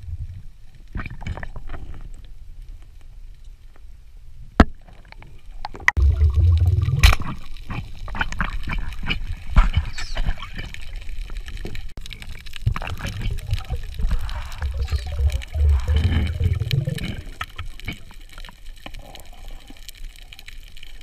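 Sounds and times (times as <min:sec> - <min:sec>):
underwater rumble of moving water: 0:05.1 - 0:21.0
bubbling: 0:05.7 - 0:21.0.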